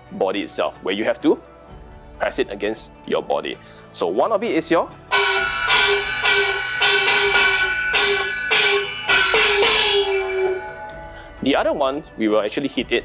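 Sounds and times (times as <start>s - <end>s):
handheld gong strikes: 5.1s - 11.6s.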